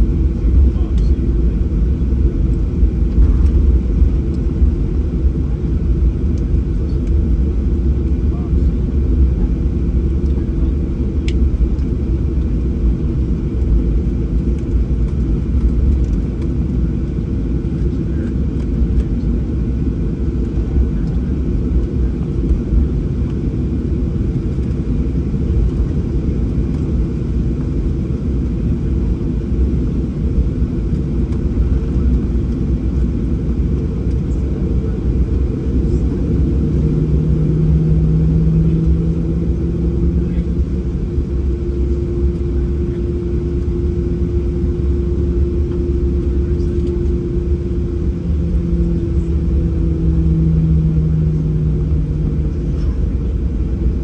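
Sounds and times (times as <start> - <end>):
aircraft engines idling: 0.0 - 54.0
steady low hum: 0.0 - 54.0.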